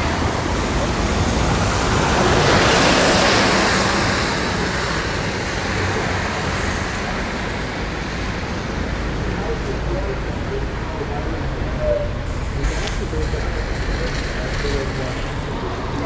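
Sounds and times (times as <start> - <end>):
low rumble of traffic: 0.0 - 16.0
tyre hiss on wet road: 12.3 - 15.7.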